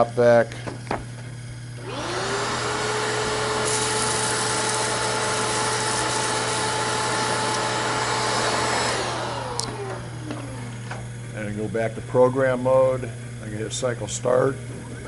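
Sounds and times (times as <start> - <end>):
shop vac motor whine: 0.0 - 15.0
metal chips sucked into hose: 3.6 - 7.8.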